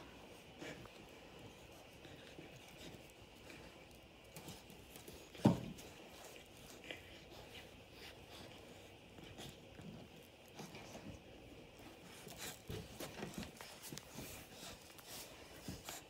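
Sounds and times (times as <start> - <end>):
dogs scuffling: 0.0 - 16.0.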